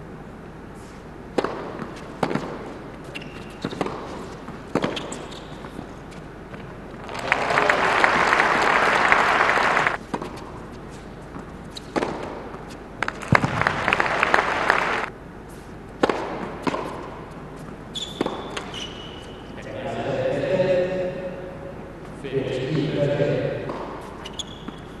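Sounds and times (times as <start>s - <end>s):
tennis ball hits: 1.3s - 5.9s, 11.8s - 14.9s, 15.9s - 17.4s, 18.1s - 18.8s, 23.6s - 24.9s
crowd applauding: 7.0s - 10.0s, 13.0s - 15.1s.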